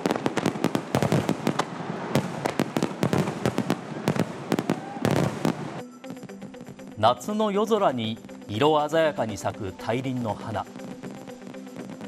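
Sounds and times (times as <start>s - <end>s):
fireworks bursting: 0.0s - 5.9s, 10.6s - 12.0s.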